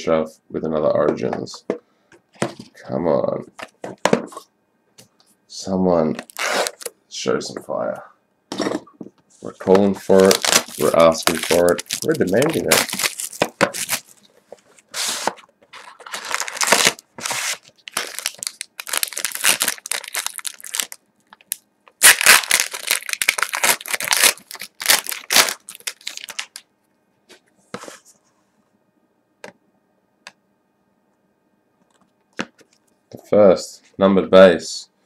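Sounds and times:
wrapping crinkling and tearing: 9.8 - 14.3, 15.0 - 26.6.

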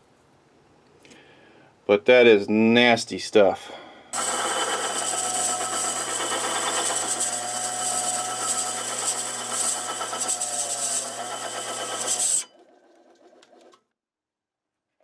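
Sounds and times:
cutting tool scraping metal: 4.2 - 12.6
lathe motor hum: 4.2 - 13.7.

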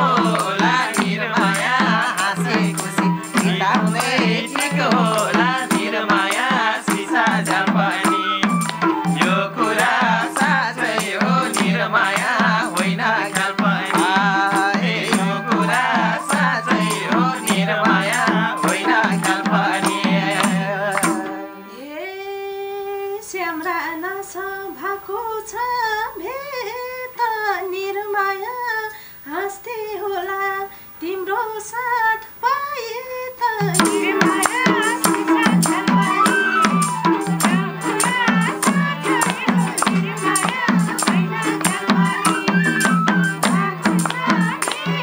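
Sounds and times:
hand drums: 0.0 - 21.6, 33.6 - 45.0
jingle instrument struck: 0.0 - 21.8, 33.6 - 45.0
harmonium: 0.0 - 24.1, 33.6 - 45.0
woman singing ornamented line: 0.0 - 45.0
bamboo flute: 7.5 - 10.8, 13.8 - 22.0, 33.6 - 40.4, 41.2 - 44.7.

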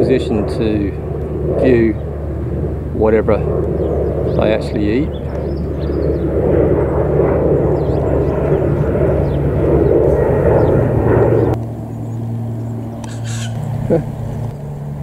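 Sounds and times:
aircraft engine rumble: 0.0 - 15.0
faint bird chirps: 11.9 - 14.3.

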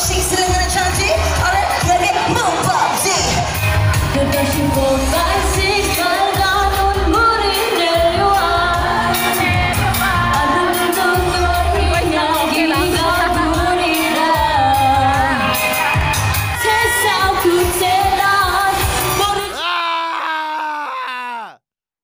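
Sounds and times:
pop backing track with bass beat: 0.0 - 19.4
person singing into microphone: 4.1 - 19.9.

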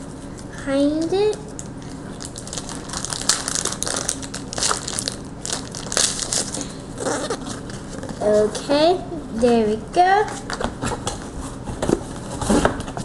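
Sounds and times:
plastic packaging crumpling: 1.5 - 8.2.

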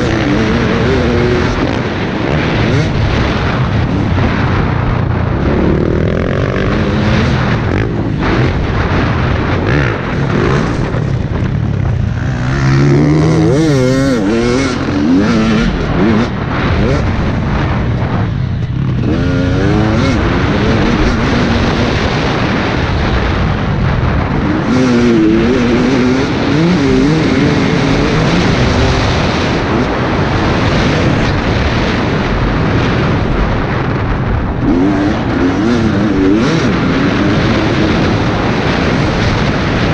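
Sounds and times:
two-stroke motorcycle engine revving: 0.0 - 39.9
wind rush: 0.0 - 39.9.

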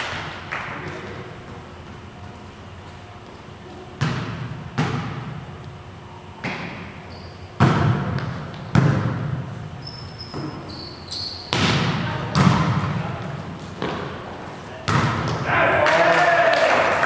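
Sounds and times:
echo in gym hall: 0.0 - 2.7, 3.4 - 17.0
volleyball being smacked: 7.6 - 9.4, 14.9 - 15.4.

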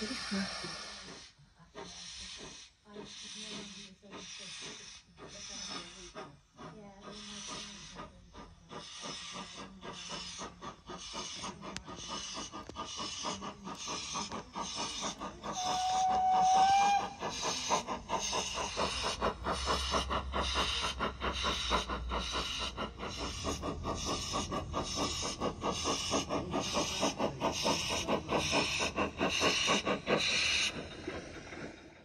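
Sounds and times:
steam exhaust chuffing: 0.0 - 32.0
steam hissing: 0.0 - 32.0
model train whistle: 15.6 - 17.2.

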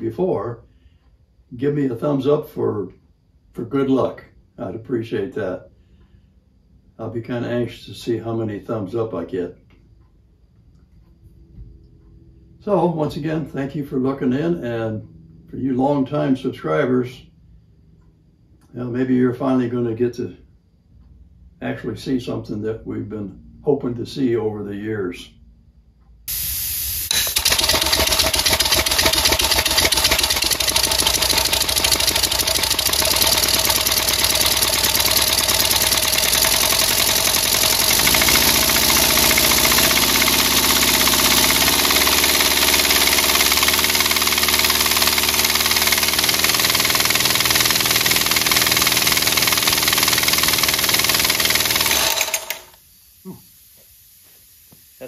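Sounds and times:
hiss of escaping air: 26.3 - 27.4, 52.8 - 55.0
air engine pulsing: 27.1 - 52.7.

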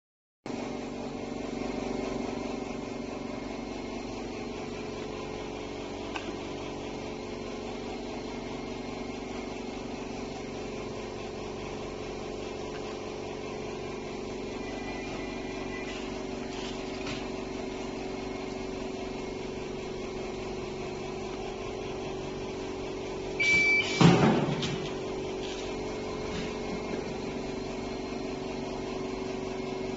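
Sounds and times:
conveyor motors humming: 0.5 - 29.9
short high beep: 14.6 - 16.3, 23.4 - 24.0.

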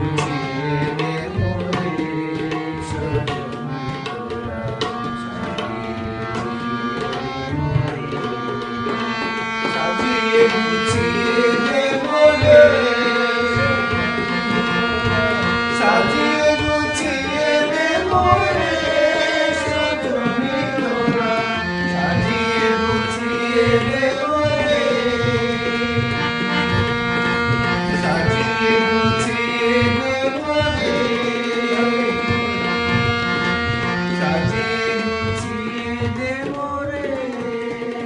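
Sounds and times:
harmonium playing chords: 0.0 - 38.0
steady drum rhythm: 7.8 - 36.0
man singing long sliding notes: 9.7 - 38.0.

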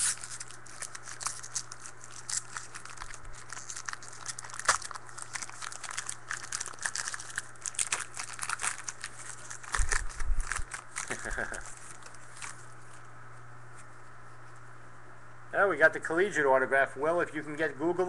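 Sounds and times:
cards being shuffled: 0.0 - 13.0
wrapper crinkling: 0.0 - 13.1.

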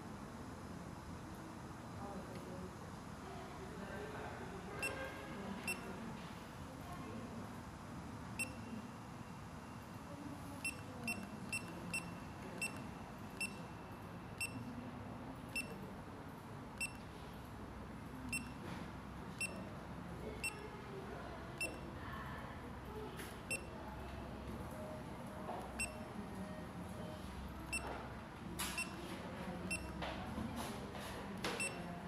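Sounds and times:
high key-press beeps: 4.8 - 5.0, 5.6 - 5.9, 8.4 - 8.7, 10.6 - 14.7, 15.5 - 15.8, 16.8 - 17.1, 18.3 - 18.6, 19.3 - 19.7, 20.4 - 20.7, 21.6 - 21.8, 23.5 - 23.7, 25.7 - 26.0, 27.7 - 27.9, 28.6 - 29.0, 29.6 - 30.0, 31.5 - 31.9.

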